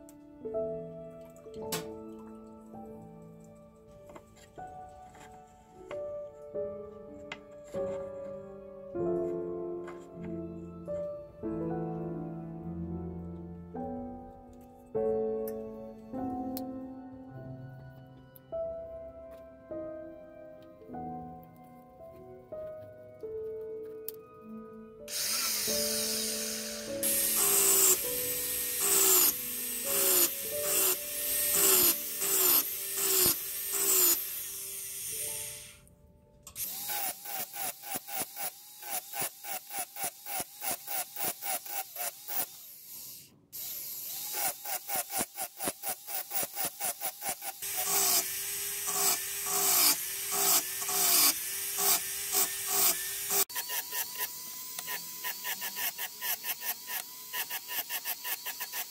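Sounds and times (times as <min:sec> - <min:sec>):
rotary tool whine bursts: 0:25.1 - 0:35.8, 0:36.6 - 0:58.9.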